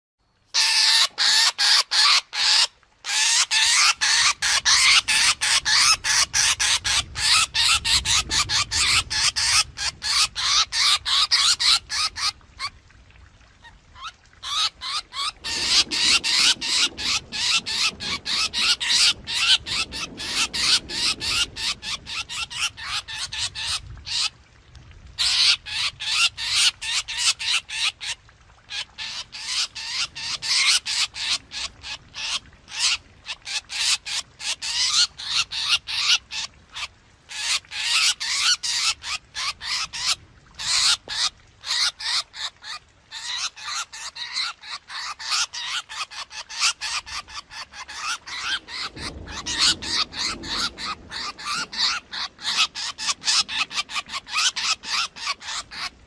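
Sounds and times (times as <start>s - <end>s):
drongo calls: 14.0s - 24.3s, 25.2s - 56.0s.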